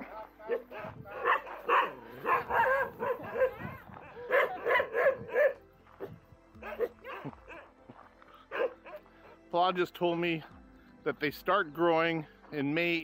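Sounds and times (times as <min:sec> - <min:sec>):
dogs barking and yipping: 0:00.0 - 0:07.8, 0:08.5 - 0:09.4.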